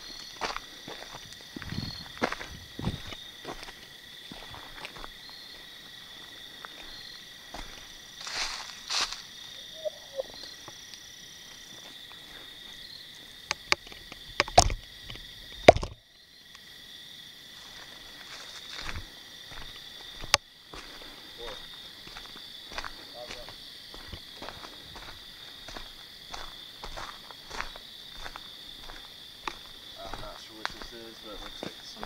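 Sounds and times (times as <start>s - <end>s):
night insects chorus: 0.0s - 32.0s
footsteps crunching dry leaves: 0.2s - 9.4s, 17.6s - 32.0s.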